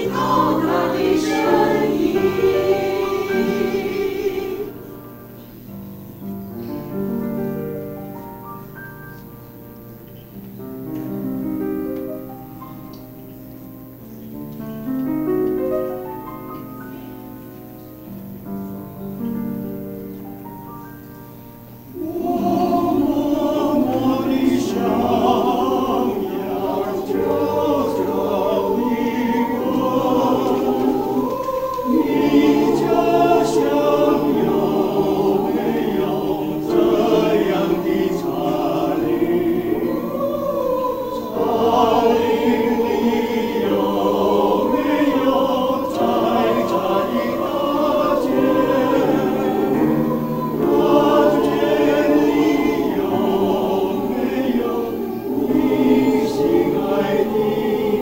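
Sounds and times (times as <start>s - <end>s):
mixed choir singing: 0.0s - 5.8s, 21.8s - 58.0s.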